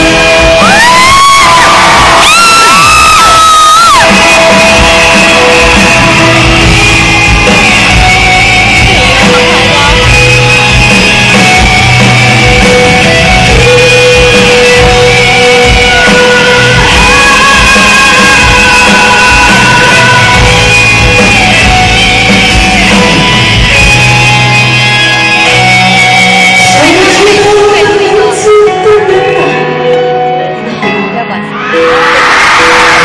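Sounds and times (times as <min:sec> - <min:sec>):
fans yelling: 0:00.0 - 0:10.1, 0:14.6 - 0:23.6
live pop-rock band music: 0:00.0 - 0:33.0.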